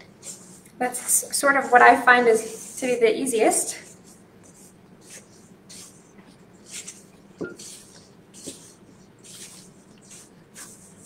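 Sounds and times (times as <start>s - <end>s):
spatula scraping dough in bowl: 3.6s - 11.0s
spatula knocking against bowl: 7.4s - 7.8s.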